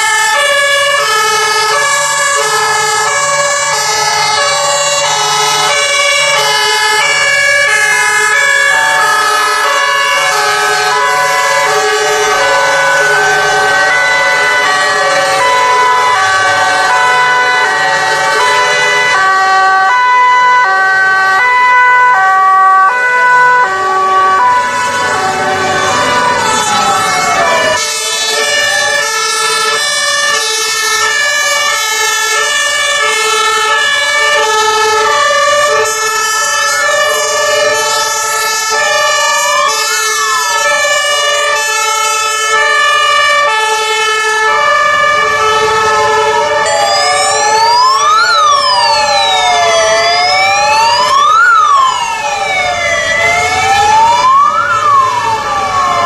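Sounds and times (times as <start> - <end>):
two-tone sirens: 0.0 - 56.0
wailing sirens: 0.0 - 56.0.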